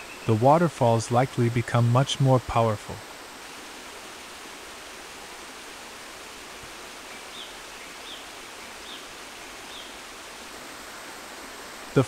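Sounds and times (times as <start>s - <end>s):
river water rushing over rocks: 2.8s - 12.0s.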